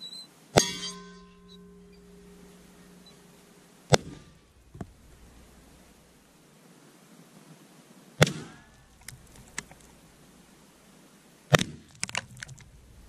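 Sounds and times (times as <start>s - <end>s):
shotgun shots: 3.9s - 4.4s, 8.2s - 8.7s.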